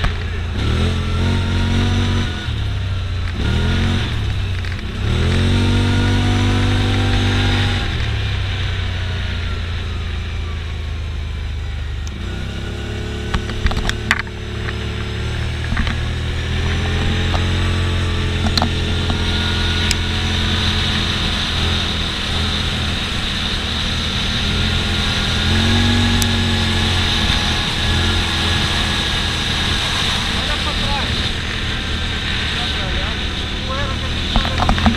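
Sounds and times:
utility vehicle engine running: 0.0 - 34.9
wind and road noise: 0.0 - 34.9.

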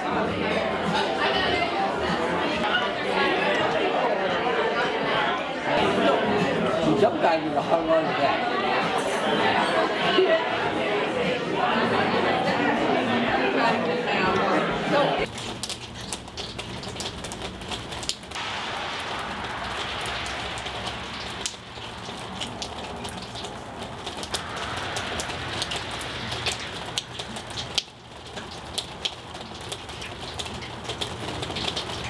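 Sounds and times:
steady hiss: 18.4 - 28.9.

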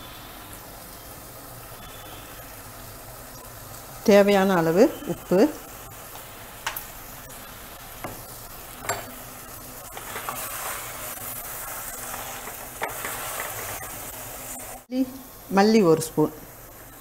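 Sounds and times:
masala sizzling: 0.0 - 17.0
wooden spatula stirring: 9.8 - 14.8.

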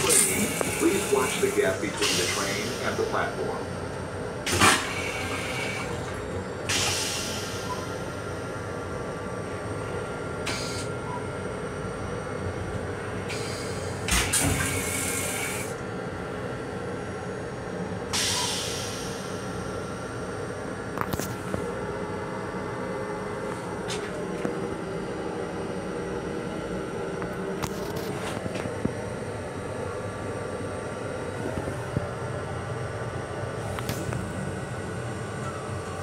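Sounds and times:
train running noise: 0.0 - 11.2, 12.3 - 16.8, 17.5 - 20.2, 30.8 - 32.4, 33.0 - 36.0.

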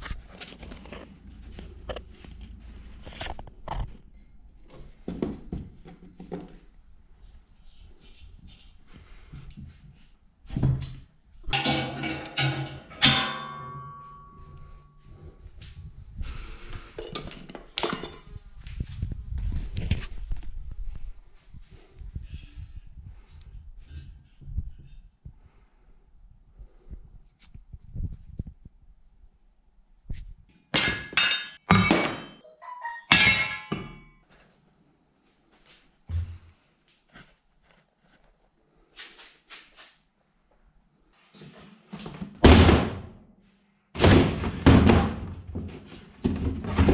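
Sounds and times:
metal parts clanking: 11.5 - 14.5, 17.0 - 18.4, 30.8 - 34.1
metal striking metal ringing: 11.5 - 15.0, 30.8 - 34.1
light metal knocks and clinks: 17.0 - 18.4.

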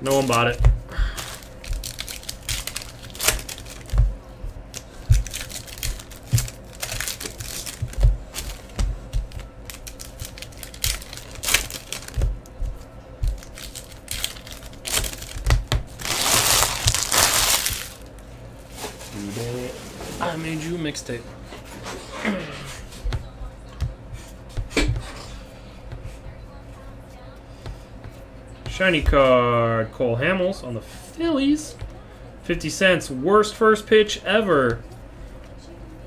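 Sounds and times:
foil wrappers tearing and crinkling: 0.0 - 4.0, 4.7 - 12.3, 13.2 - 18.2
cards tapped and shuffled: 0.0 - 17.9.

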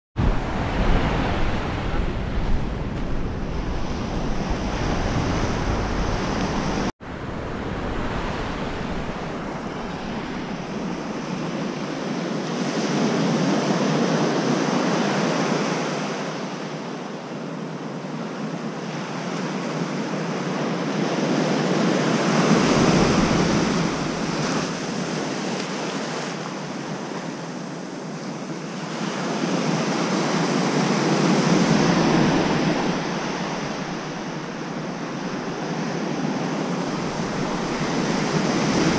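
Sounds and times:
wind buffeting microphone: 0.2 - 13.0, 22.2 - 25.8, 29.6 - 38.9
surf breaking on beach: 0.2 - 16.0, 21.0 - 38.9.

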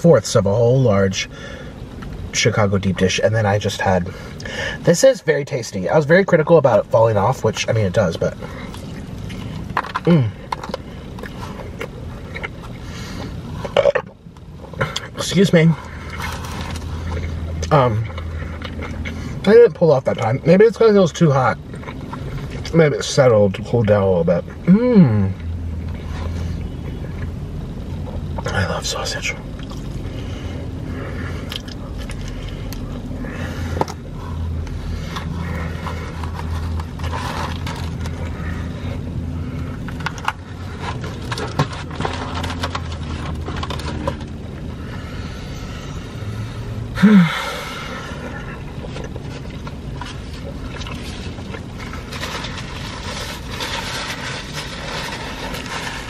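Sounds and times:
low steady hum: 0.0 - 56.0
person chewing: 8.4 - 15.2, 15.8 - 19.4, 21.6 - 22.7, 29.5 - 44.8, 47.9 - 56.0
box and paper rustling: 36.1 - 38.2, 40.8 - 44.3, 51.0 - 56.0.

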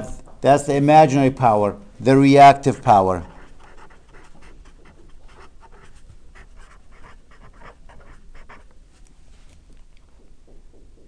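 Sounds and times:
marker scratching on paper: 2.6 - 8.7.

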